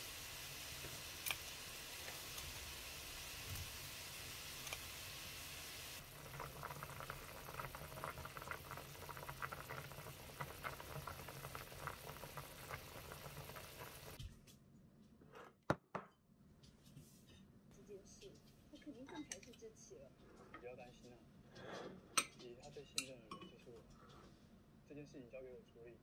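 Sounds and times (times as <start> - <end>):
soup boiling with bubbles popping: 0.0 - 14.2.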